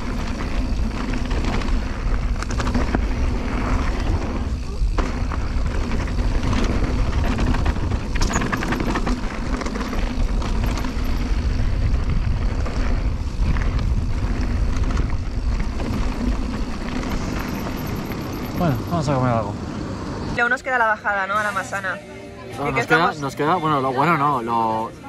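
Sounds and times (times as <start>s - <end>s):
wind rushing on microphone: 0.0s - 18.9s
bike knocks and rattles: 0.0s - 19.0s
steady low rumble: 0.0s - 25.0s.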